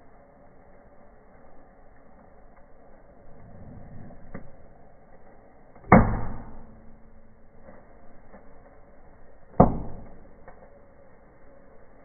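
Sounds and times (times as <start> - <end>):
faint crackles: 0.0 - 5.8, 6.7 - 12.0
firecracker bangs in stove: 5.8 - 7.6, 9.5 - 10.4.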